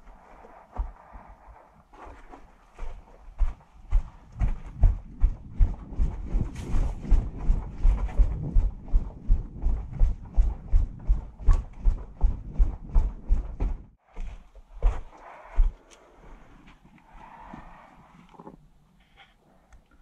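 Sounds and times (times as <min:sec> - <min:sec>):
heavy fast footsteps: 0:00.6 - 0:15.8.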